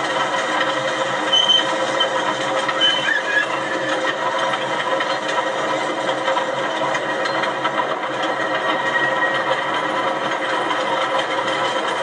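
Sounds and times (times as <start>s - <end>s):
miniature train running: 0.0s - 12.0s
short high squeals: 1.3s - 1.7s.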